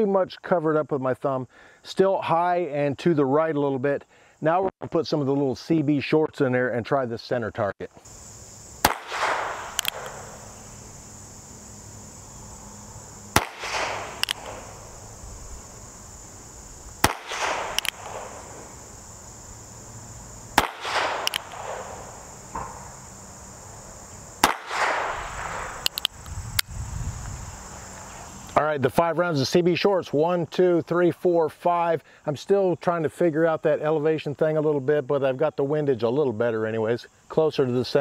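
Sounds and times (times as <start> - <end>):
high insect drone: 6.7 - 31.2, 31.8 - 38.0
small revolver shots: 8.8 - 10.6, 13.3 - 15.1, 17.0 - 18.9, 20.5 - 22.9, 24.4 - 26.1.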